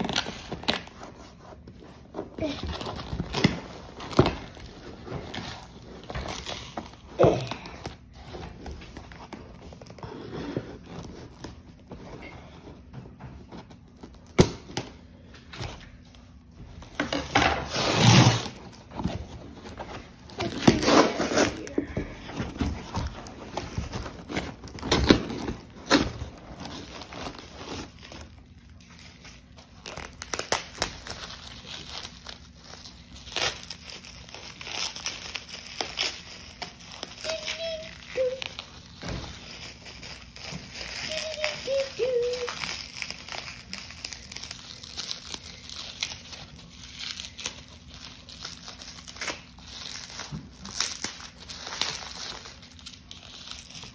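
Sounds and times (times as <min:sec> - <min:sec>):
paper crinkling and tearing: 0:15.6 - 0:53.9.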